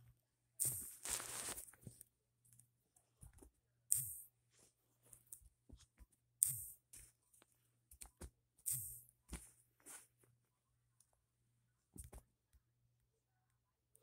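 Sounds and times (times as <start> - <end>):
blanket and hands rustling: 0.6 - 1.9.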